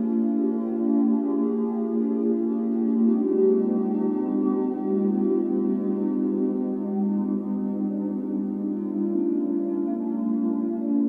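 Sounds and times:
ambient music with held notes: 0.0s - 11.0s.

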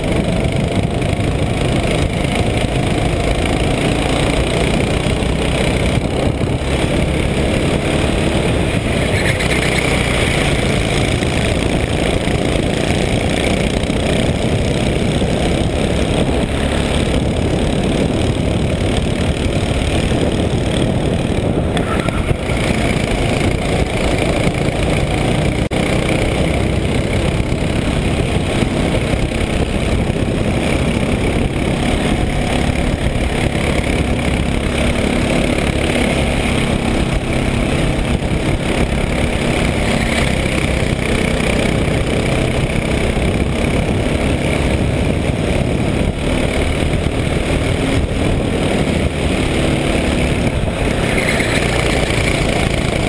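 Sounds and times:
heavy low rumble: 0.0s - 40.4s
kart engine running hard: 0.0s - 53.0s.

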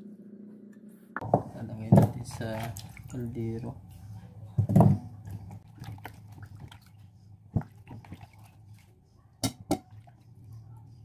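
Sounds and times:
water splashing and dripping: 1.8s - 3.8s, 4.6s - 10.6s.

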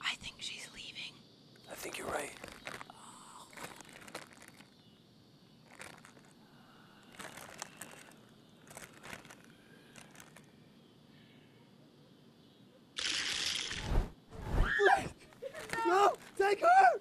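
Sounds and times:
chip bag crinkling: 1.9s - 2.9s, 3.5s - 4.8s, 5.6s - 6.4s, 7.1s - 10.5s, 13.0s - 13.9s, 15.4s - 16.5s.

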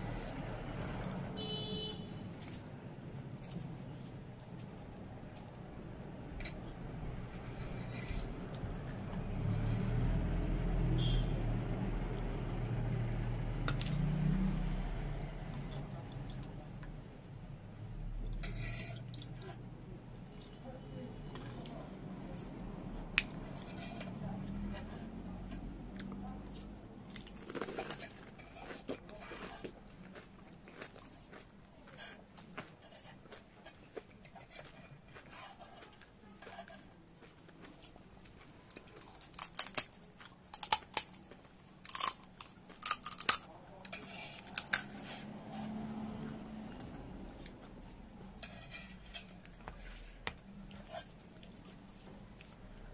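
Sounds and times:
faint chewing: 15.5s - 52.9s
wet squishy dripping sounds: 16.0s - 16.9s
crisp shell crackle: 39.2s - 41.3s.

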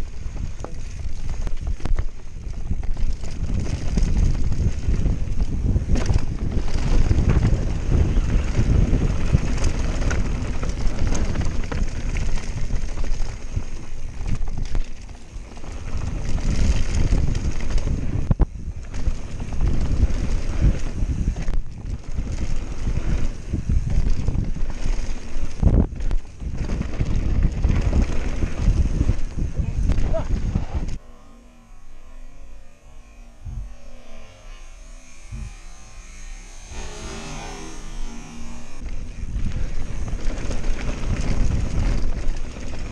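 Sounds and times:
bike knocks and rattles: 0.0s - 31.0s
bike tyres rolling over gravel: 0.0s - 31.0s, 36.7s - 42.9s
wind buffeting microphone: 0.0s - 31.0s, 33.4s - 42.9s.

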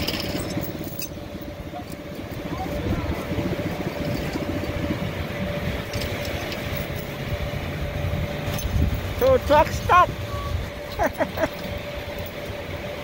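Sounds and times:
steady whine: 0.0s - 13.0s
truck engine rumbling: 0.0s - 13.0s.

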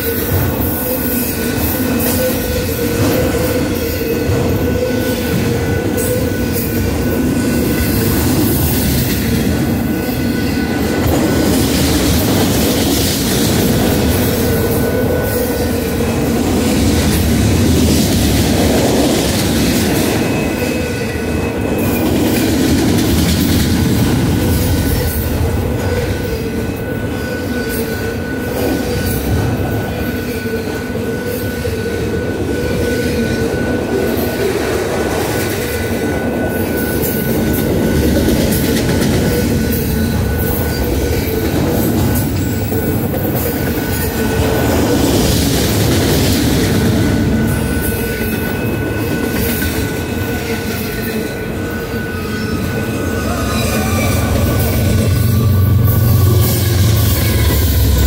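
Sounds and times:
train wheels rumbling on rails: 0.0s - 58.0s
high-pitched tone: 51.2s - 58.0s.

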